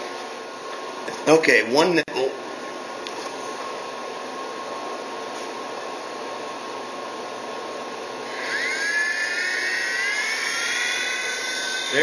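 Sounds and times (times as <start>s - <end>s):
fan-like background hiss: 0.0s - 12.0s
small electric motor whine: 8.2s - 12.0s.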